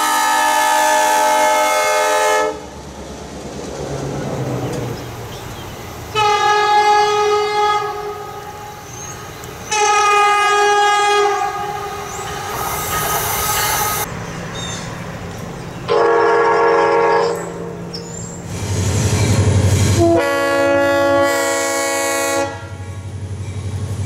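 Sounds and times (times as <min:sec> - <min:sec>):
train horn: 0:00.0 - 0:02.8, 0:06.1 - 0:08.8, 0:09.7 - 0:14.1, 0:15.9 - 0:17.9, 0:19.9 - 0:23.0
rolling train rumble: 0:00.0 - 0:24.0.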